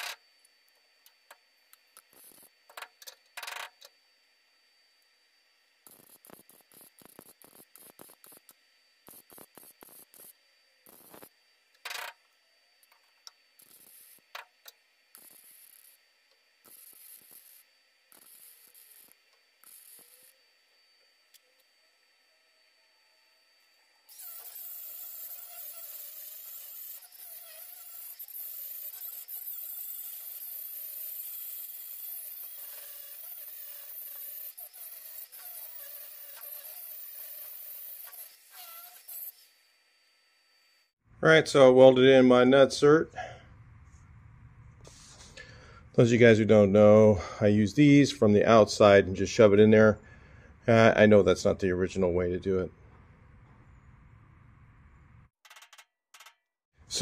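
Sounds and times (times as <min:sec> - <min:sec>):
angle grinder grinding metal: 0:00.0 - 0:00.2, 0:01.9 - 0:03.9, 0:05.9 - 0:12.2, 0:12.8 - 0:16.0, 0:16.6 - 0:20.5, 0:24.1 - 0:39.6
welder crackling bursts: 0:01.7 - 0:03.9, 0:05.8 - 0:20.4, 0:24.1 - 0:39.6.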